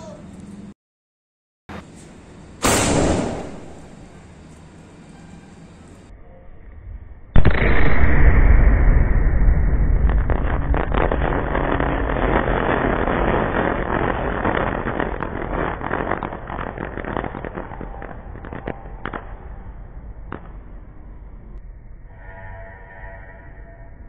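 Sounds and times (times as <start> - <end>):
low rumble: 5.8 - 24.0
firework crackling pops: 10.0 - 19.6, 20.2 - 20.8.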